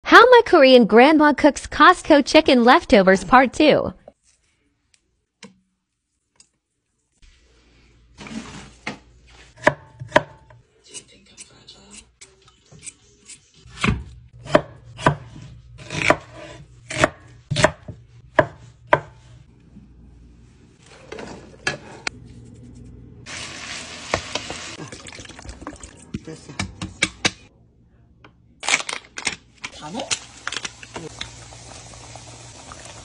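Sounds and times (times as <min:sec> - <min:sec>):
knife chopping on wooden board: 0:09.6 - 0:10.5, 0:13.7 - 0:19.2.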